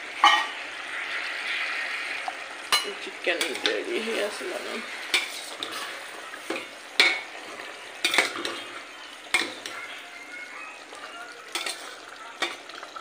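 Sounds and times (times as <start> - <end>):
pan sizzling: 0.0 - 13.0
metal ladle scraping and clinking pot: 5.1 - 7.4, 11.5 - 12.6.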